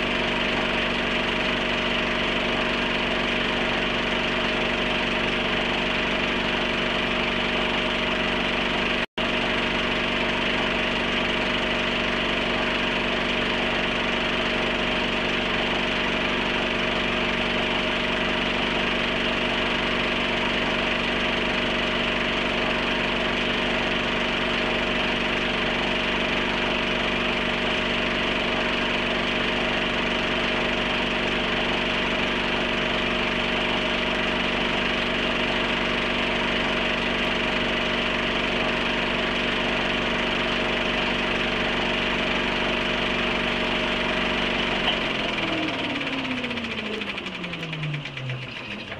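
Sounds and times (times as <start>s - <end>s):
mechanical hum and whir: 44.2s - 48.9s.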